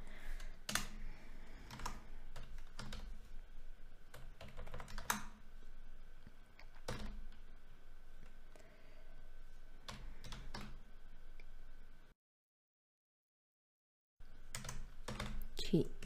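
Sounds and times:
typing on computer keyboard: 0.4s - 3.2s, 4.1s - 5.4s, 6.6s - 7.4s, 9.9s - 10.8s, 14.5s - 15.5s.

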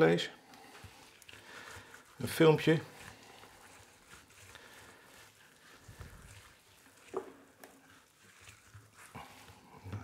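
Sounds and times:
gloved hand rubbing meat: 0.0s - 10.0s.

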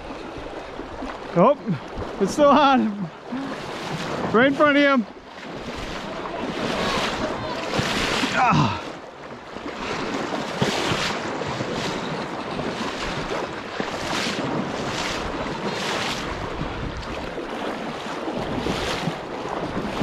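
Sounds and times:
river current rushing: 0.0s - 20.0s
splashes from wading: 0.0s - 20.0s
wind buffeting microphone: 9.6s - 20.0s.

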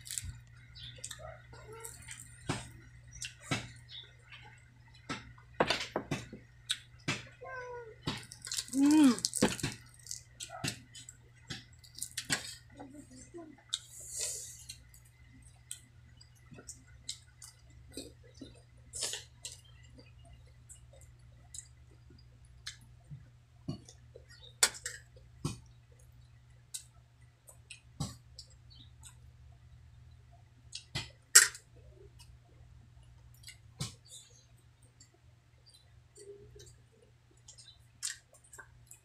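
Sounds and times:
chewing and lip smacking: 0.0s - 5.1s, 8.2s - 12.8s
faint low hum: 0.0s - 39.0s.

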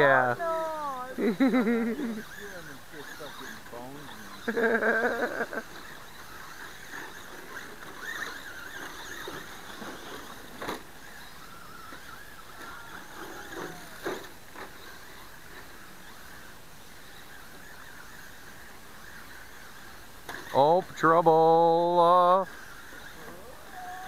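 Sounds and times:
rc car motors whining: 0.0s - 24.0s
person shouting: 0.3s - 1.2s.

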